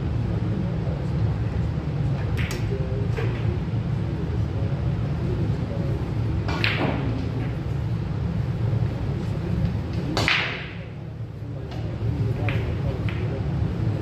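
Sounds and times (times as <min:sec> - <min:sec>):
low hum of hall: 0:00.0 - 0:14.0
pool balls clacking: 0:11.8 - 0:13.4.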